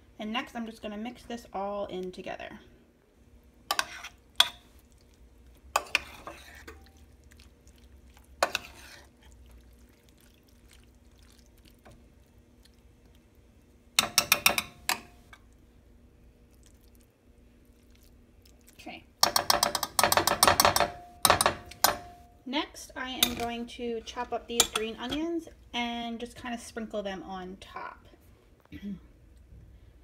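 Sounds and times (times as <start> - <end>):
spoon stirring thick wet mixture: 3.7 - 15.6
spoon knocking and scraping a dish: 14.0 - 15.2, 19.2 - 22.2.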